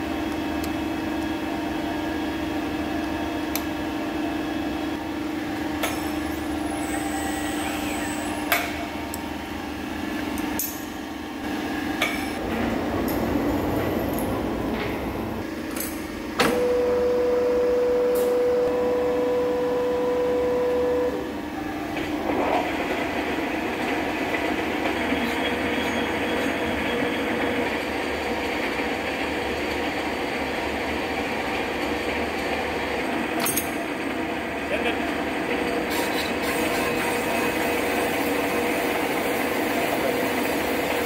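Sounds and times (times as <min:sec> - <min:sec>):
loud steady whine: 0:00.0 - 0:28.2
lathe hum: 0:00.0 - 0:33.3
boring bar cutting steel: 0:05.8 - 0:09.2.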